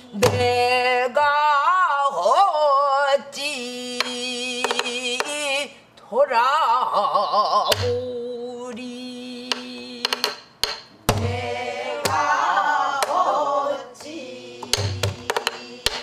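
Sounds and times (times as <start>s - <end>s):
woman singing with wavering voice: 0.0s - 10.4s, 11.2s - 16.0s
barrel drum thumps: 10.1s - 12.4s, 14.6s - 16.0s.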